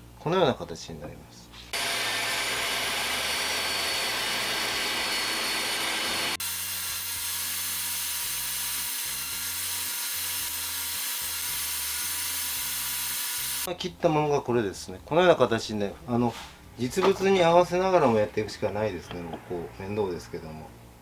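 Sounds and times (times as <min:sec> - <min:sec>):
table saw cutting wood: 0:01.7 - 0:13.7.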